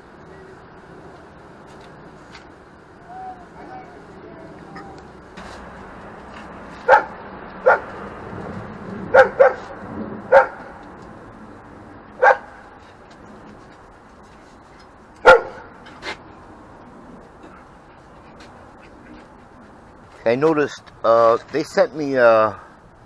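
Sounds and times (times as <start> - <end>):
dog barking: 6.8 - 7.9, 9.1 - 9.7, 10.3 - 10.7, 12.2 - 12.6, 15.2 - 15.7.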